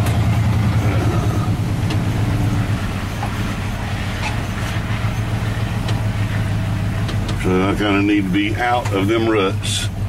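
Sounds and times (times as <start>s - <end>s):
truck engine drone from inside cab: 0.0s - 10.0s.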